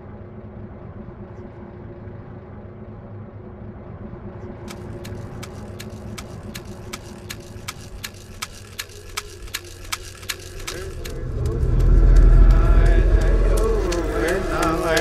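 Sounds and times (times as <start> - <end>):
car engine hum: 0.0 - 15.0
turn signal ticking: 5.0 - 15.0.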